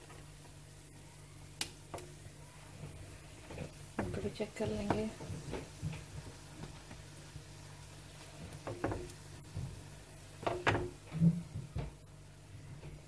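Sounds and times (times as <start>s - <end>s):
low steady hum: 0.0s - 13.0s
spatula knocking and scraping pan: 3.6s - 7.0s, 8.4s - 9.8s, 10.4s - 11.8s.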